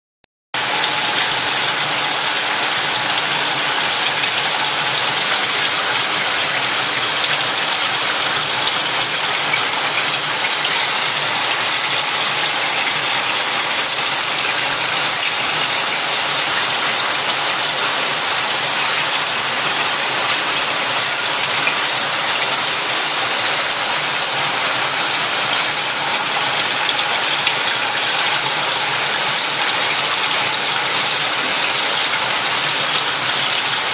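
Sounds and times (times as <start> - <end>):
running water trickling: 0.6 - 33.9.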